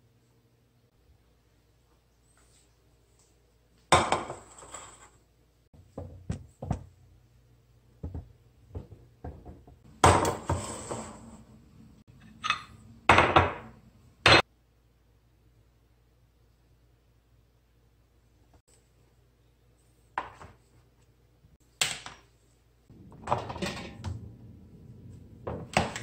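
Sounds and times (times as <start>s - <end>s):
dishes knocking and clinking: 3.9s - 4.7s, 8.0s - 11.2s, 12.2s - 14.4s, 23.1s - 24.2s.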